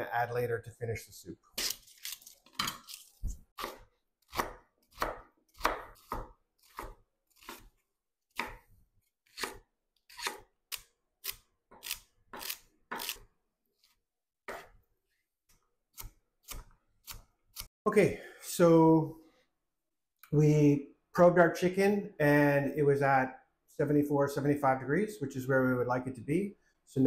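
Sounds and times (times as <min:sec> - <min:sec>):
knife chopping on wooden board: 0:03.6 - 0:07.7, 0:08.4 - 0:08.6, 0:09.3 - 0:10.4, 0:11.3 - 0:13.2, 0:14.5 - 0:14.7.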